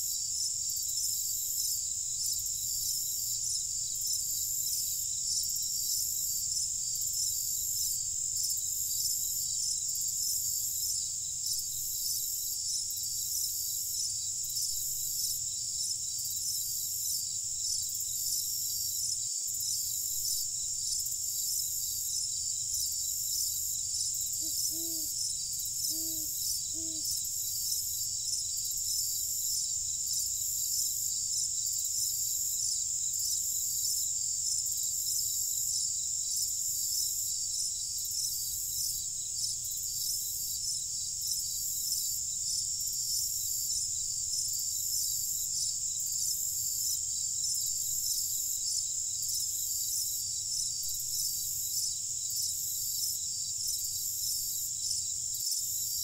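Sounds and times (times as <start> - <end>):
crickets chirping: 0.0 - 56.0
brief low animal calls: 24.4 - 25.2.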